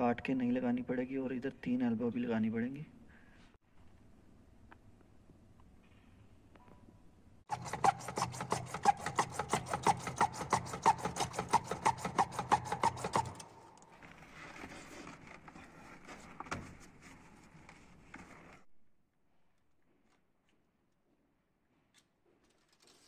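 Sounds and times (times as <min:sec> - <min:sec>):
hacksaw cutting plastic pipe: 0:07.5 - 0:14.8
handling scrapes: 0:07.5 - 0:18.7.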